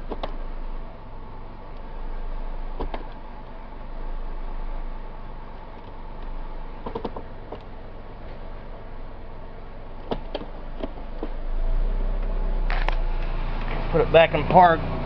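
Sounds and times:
gear selector clicks: 0.0 - 0.4, 5.6 - 7.7
car engine idling: 0.0 - 15.0.

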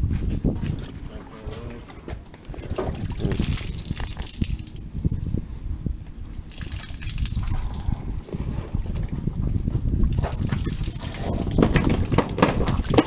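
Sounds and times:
water gushing from plastic bag: 2.9 - 4.8, 6.4 - 8.1, 10.2 - 12.1
handling rumble: 7.1 - 13.0
knocks: 11.6 - 13.0.

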